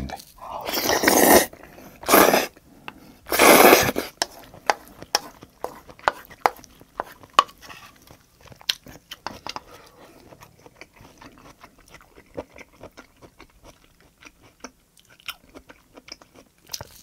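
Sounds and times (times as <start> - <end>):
person slurping food: 0.4 - 2.6, 3.3 - 4.4.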